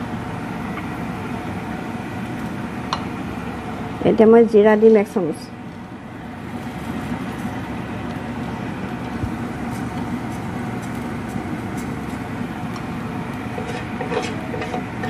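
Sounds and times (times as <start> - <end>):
low hum and hiss: 0.0 - 15.0
seeds crackling in hot oil: 5.7 - 15.0.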